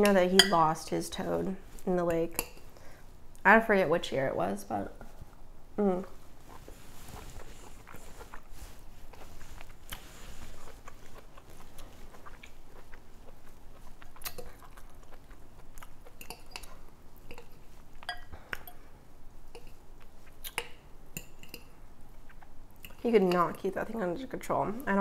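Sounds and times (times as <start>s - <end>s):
person chewing salad: 6.2s - 23.0s.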